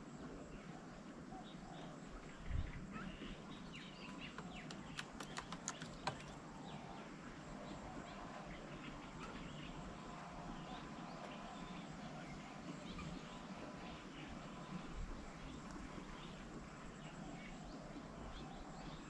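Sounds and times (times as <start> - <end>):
small birds chirping: 0.0 - 19.0
sharp ticks: 4.4 - 6.3.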